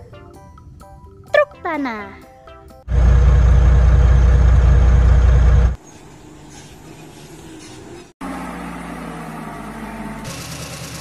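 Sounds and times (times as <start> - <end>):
dump truck engine rumble: 2.9 - 5.8
truck engine idling: 2.9 - 5.8.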